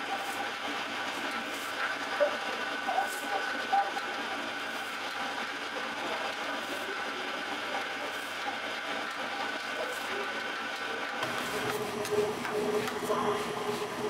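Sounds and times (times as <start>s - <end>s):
dough mixer running: 0.0s - 14.0s.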